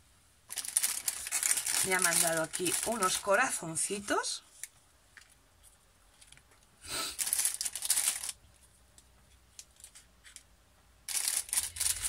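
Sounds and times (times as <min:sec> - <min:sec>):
plastic wrapping crinkling: 0:00.5 - 0:05.4, 0:06.2 - 0:08.4, 0:11.0 - 0:12.0.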